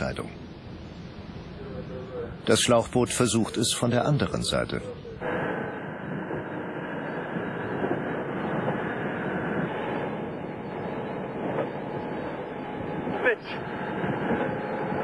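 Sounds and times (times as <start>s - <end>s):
wind on boat hull: 5.2s - 15.0s.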